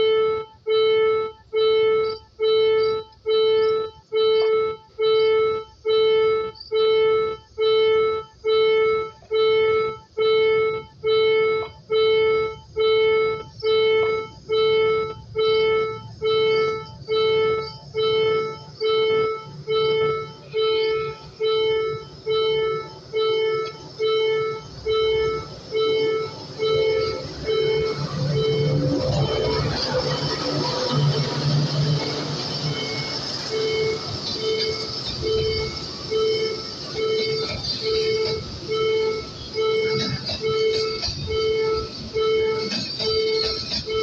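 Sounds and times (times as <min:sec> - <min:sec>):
level crossing electronic bell: 0:00.0 - 0:44.0
low hum: 0:00.0 - 0:44.0.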